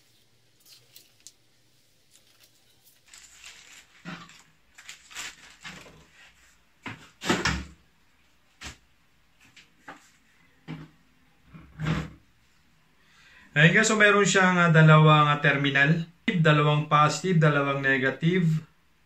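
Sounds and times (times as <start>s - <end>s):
packaging rustling: 0.5s - 6.4s.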